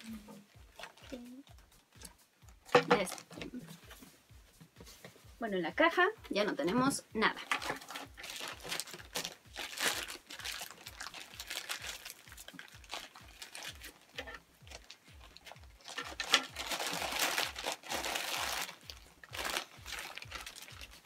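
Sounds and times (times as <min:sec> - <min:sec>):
plastic bag crinkling: 0:02.7 - 0:03.7, 0:07.4 - 0:21.0.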